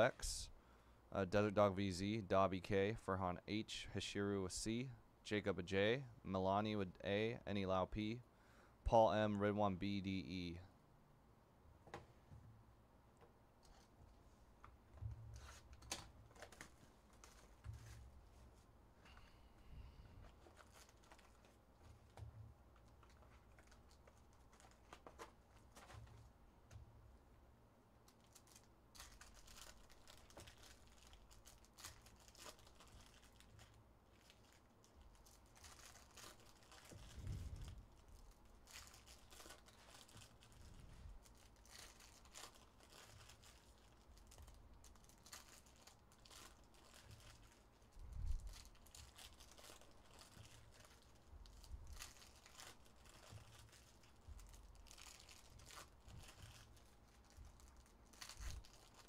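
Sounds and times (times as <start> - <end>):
card pack wrappers crinkling: 15.4 - 18.5, 20.2 - 26.2, 28.0 - 59.0.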